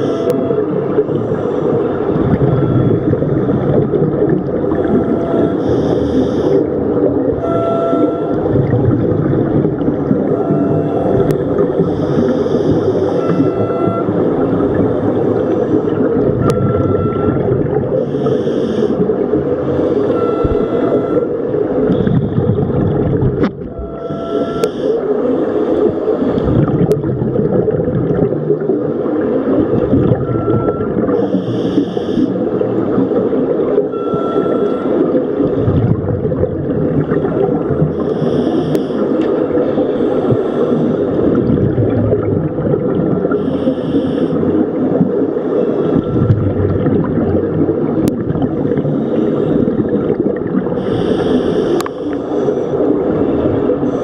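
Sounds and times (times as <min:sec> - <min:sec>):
low underwater rumble: 0:00.0 - 0:54.0
regulator hissing on inhalation: 0:18.0 - 0:19.0, 0:43.4 - 0:44.4, 0:50.8 - 0:52.5
bubbling exhalation: 0:21.9 - 0:23.6.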